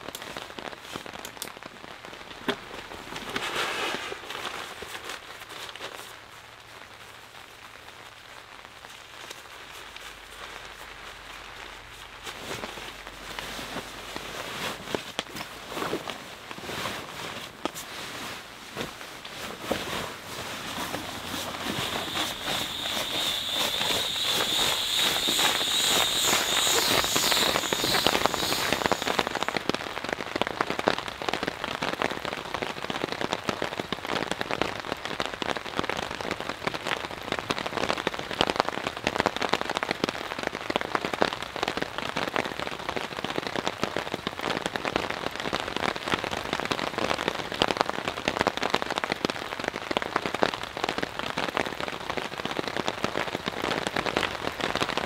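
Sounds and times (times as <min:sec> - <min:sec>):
rain pattering on tent fabric: 0:00.0 - 0:55.0
high even tone: 0:21.7 - 0:29.5.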